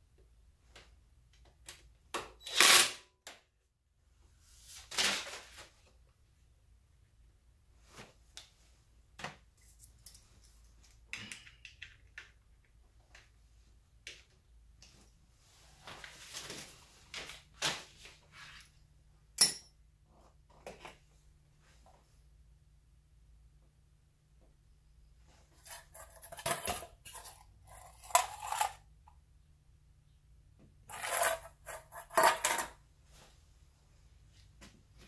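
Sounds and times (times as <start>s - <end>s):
metal scrapes: 30.9s - 32.7s.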